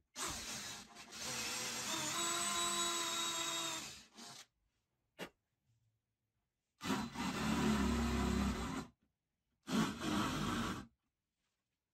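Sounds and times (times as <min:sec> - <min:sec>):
power drill whining: 0:00.2 - 0:04.5.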